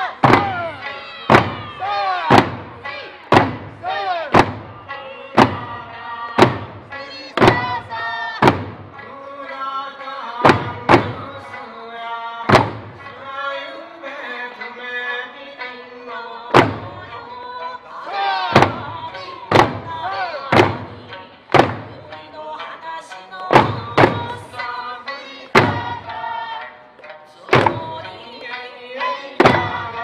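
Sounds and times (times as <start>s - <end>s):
drums struck in unison: 0.0s - 9.3s, 10.4s - 11.6s, 12.4s - 13.3s, 16.5s - 17.2s, 18.1s - 22.7s, 23.4s - 26.7s, 27.5s - 28.3s, 29.0s - 30.0s
folk song with lute accompaniment: 4.7s - 30.0s.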